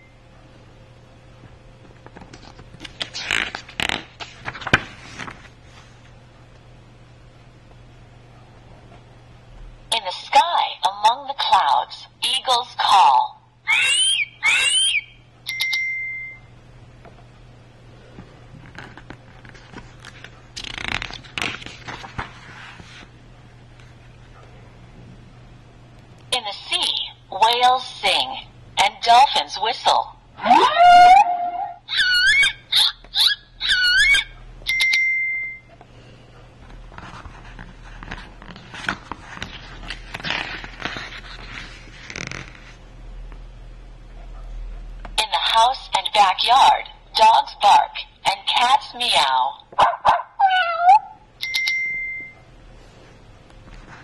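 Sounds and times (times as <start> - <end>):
paper rustling: 2.1 - 6.0, 18.6 - 23.1, 36.9 - 42.8
stiff book page turning: 2.1 - 6.0, 18.6 - 23.1, 36.9 - 42.8
eagle screech from small speaker: 13.7 - 15.1
dolphin whistles through small speaker: 13.7 - 15.2, 30.4 - 34.9.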